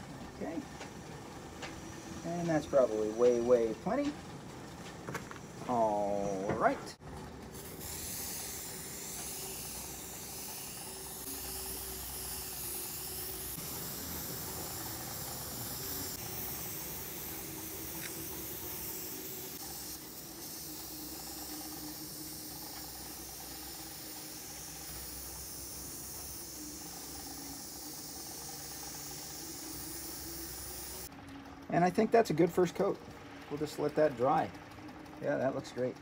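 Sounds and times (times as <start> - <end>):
paint sprayer hissing: 7.5 - 31.1.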